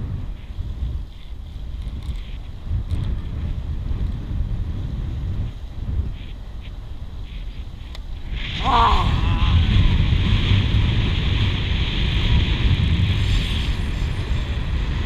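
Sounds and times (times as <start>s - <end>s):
wind buffeting microphone: 0.0s - 15.0s
high wavering cry: 8.6s - 9.7s.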